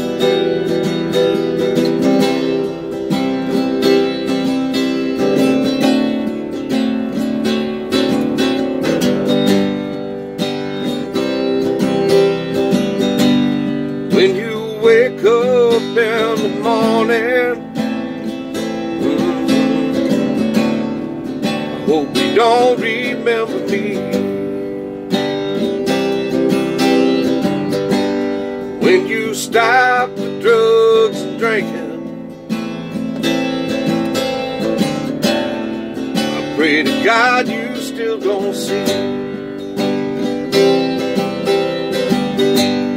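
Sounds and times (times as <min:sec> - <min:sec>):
acoustic guitar strumming: 0:00.0 - 0:42.9
man singing without words: 0:14.1 - 0:18.0, 0:18.6 - 0:24.7, 0:28.6 - 0:32.3, 0:36.2 - 0:39.4.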